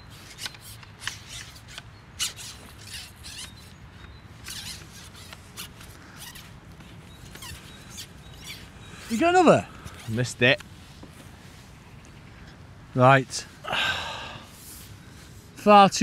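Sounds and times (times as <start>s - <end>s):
fishing pole clicking and rustling: 0.0s - 12.6s.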